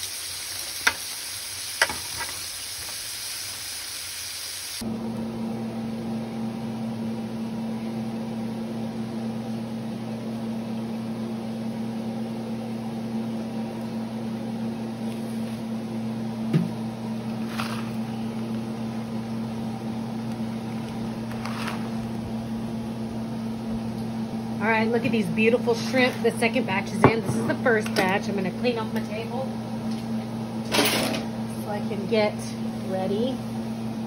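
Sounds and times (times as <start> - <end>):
appliance motor humming: 12.2 - 34.0.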